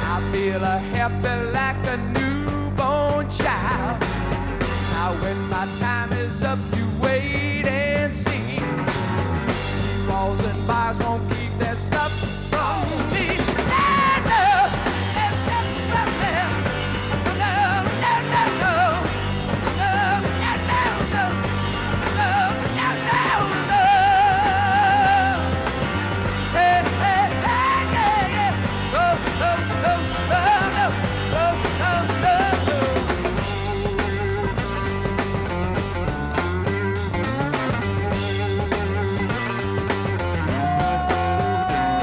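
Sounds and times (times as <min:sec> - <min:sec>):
bass guitar: 0:00.0 - 0:42.0
drums: 0:00.0 - 0:42.0
electric guitar: 0:00.0 - 0:42.0
singer wailing and yelling: 0:10.0 - 0:25.9, 0:26.5 - 0:34.7, 0:40.2 - 0:42.0.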